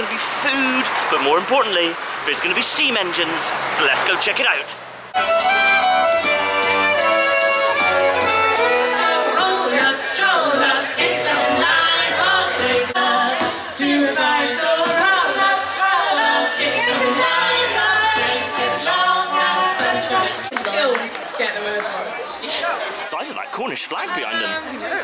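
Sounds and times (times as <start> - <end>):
accordion: 5.1 - 14.0
live band with singing: 6.9 - 20.5.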